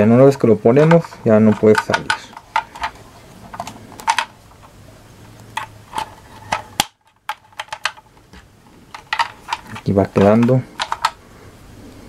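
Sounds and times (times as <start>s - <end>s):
plastic toy parts clicking: 0.8s - 4.7s, 5.6s - 11.2s.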